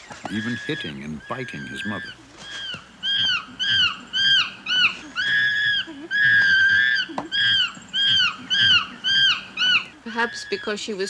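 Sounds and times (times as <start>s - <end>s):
young chimpanzee screaming: 0.1s - 11.0s.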